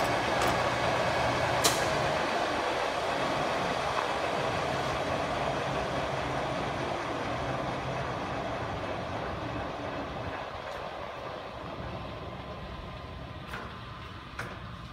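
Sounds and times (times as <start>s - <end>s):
lathe running with mechanical hum: 0.0s - 14.9s.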